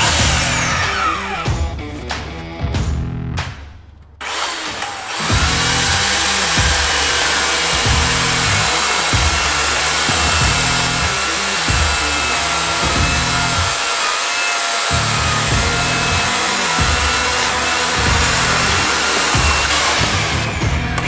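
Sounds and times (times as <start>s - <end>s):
electric chainsaw cutting log: 0.0s - 1.5s, 4.2s - 21.0s
background music: 14.8s - 21.0s.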